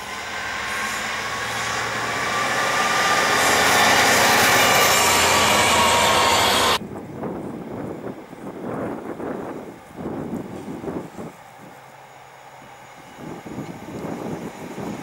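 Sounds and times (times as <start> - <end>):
diesel locomotive passing: 0.0 - 15.0
train wheels on rails: 0.0 - 15.0
wind on microphone: 6.8 - 11.7, 13.2 - 15.0.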